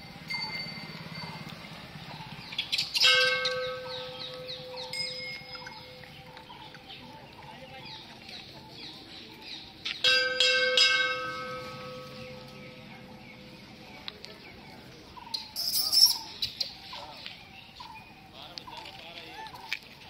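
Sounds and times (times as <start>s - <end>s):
metal bell ringing: 0.0s - 1.7s, 3.0s - 6.1s, 10.0s - 13.2s
birds chirping: 0.0s - 20.0s.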